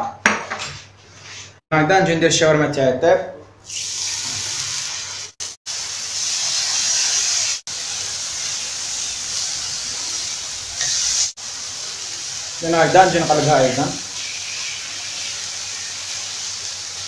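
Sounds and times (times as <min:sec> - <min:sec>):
chicken sizzling in oil: 0:03.7 - 0:17.0.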